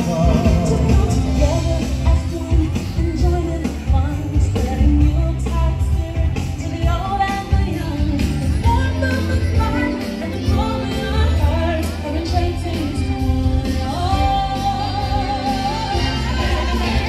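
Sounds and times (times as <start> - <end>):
song with singing over beat: 0.0 - 17.0.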